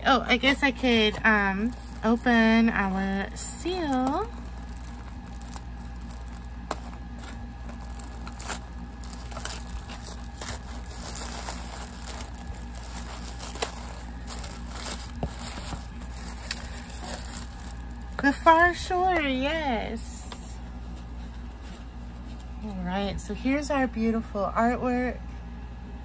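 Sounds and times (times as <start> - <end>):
low hum: 0.0 - 26.0
tissue paper crinkling: 0.4 - 19.4
small crackles and clicks: 1.7 - 19.3.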